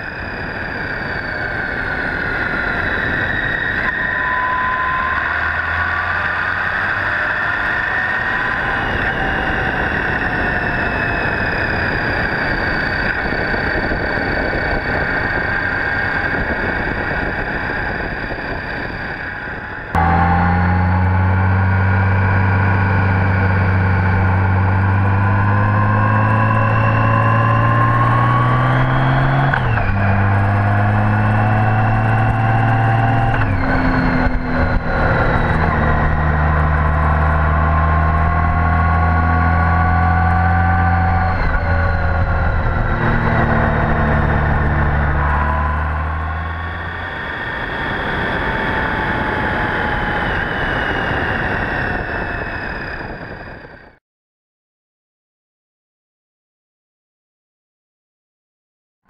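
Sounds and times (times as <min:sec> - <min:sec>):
low engine drone: 0:00.0 - 0:54.0
wind and road noise: 0:00.0 - 0:54.0
motorcycle engine running: 0:20.0 - 0:50.2.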